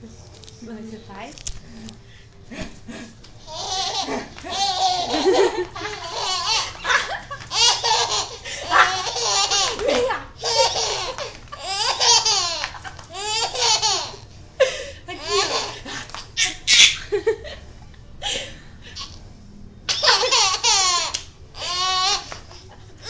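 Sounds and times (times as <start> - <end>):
baby laughing: 3.4 - 14.2, 15.1 - 17.2, 19.9 - 23.0.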